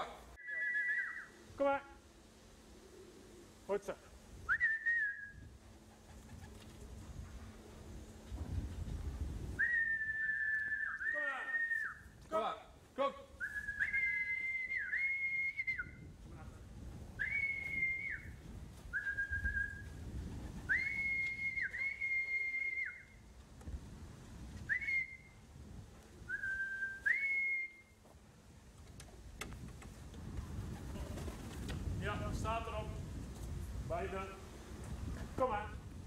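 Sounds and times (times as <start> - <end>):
man whistling two notes: 0.4 - 1.3, 4.5 - 5.4, 9.6 - 12.0, 13.4 - 16.0, 17.2 - 18.3, 18.9 - 19.9, 20.7 - 23.1, 24.7 - 25.4, 26.3 - 28.0.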